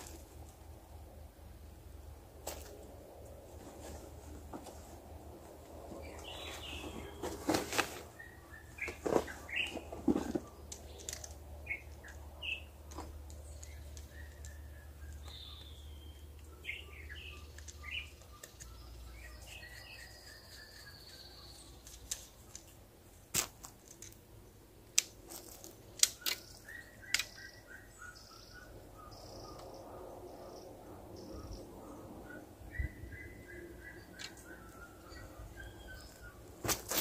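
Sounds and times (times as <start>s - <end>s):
wild birds chirping: 5.6s - 22.9s, 25.8s - 37.0s.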